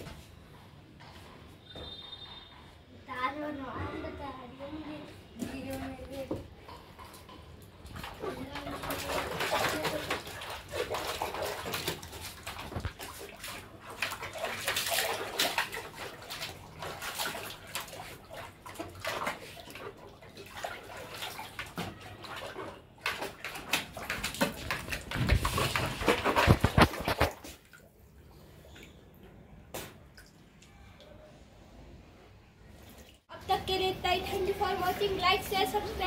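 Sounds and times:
puppy splashing water in a tub: 0:04.6 - 0:31.2.

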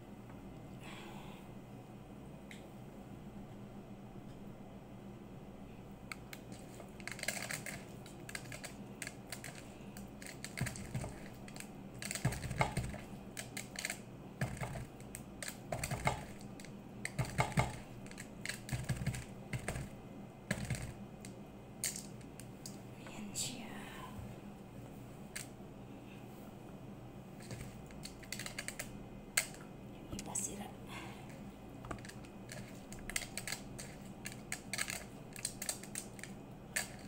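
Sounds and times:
steady low hum: 0:00.0 - 0:37.0
clicks and taps of hand packing vegetables: 0:10.5 - 0:13.0, 0:17.0 - 0:17.8.

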